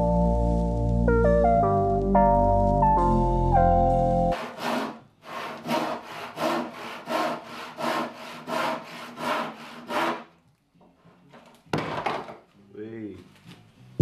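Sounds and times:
handsaw cutting worktop: 4.4s - 10.3s.

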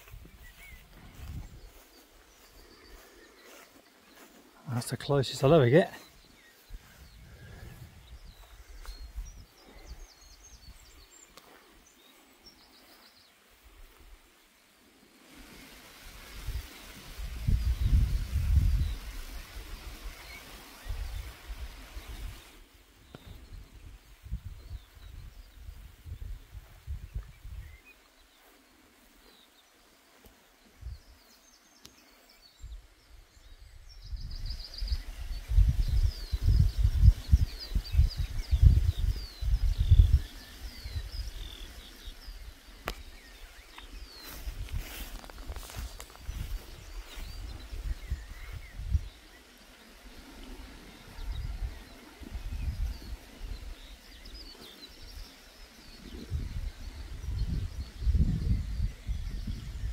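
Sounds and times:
wind buffeting microphone: 0.0s - 3.6s, 6.1s - 11.1s, 15.5s - 27.8s, 33.4s - 49.4s, 50.0s - 59.9s
small birds chirping: 0.0s - 59.9s.

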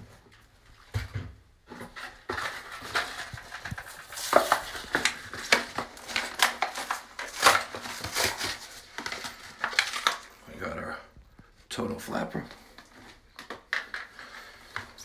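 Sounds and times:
plastic blister packaging crackling: 2.0s - 10.4s.

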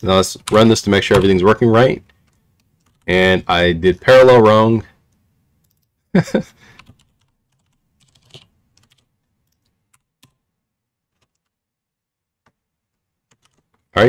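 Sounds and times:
computer keyboard keystrokes: 6.7s - 10.4s, 11.1s - 11.5s, 13.3s - 13.9s.

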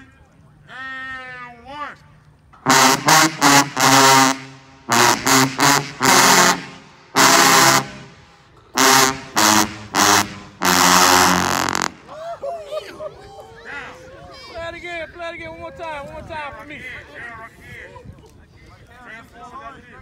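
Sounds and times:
tubas playing unison riff: 2.6s - 12.1s.

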